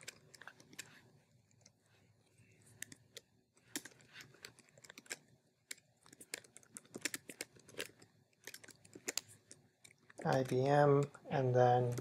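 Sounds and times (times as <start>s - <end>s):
typing on computer keyboard: 3.7s - 10.7s.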